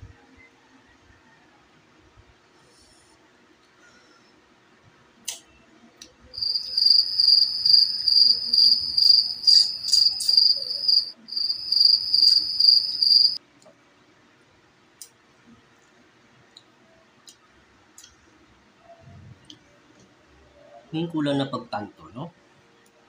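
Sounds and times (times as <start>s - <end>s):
cricket chirping: 6.3s - 13.4s.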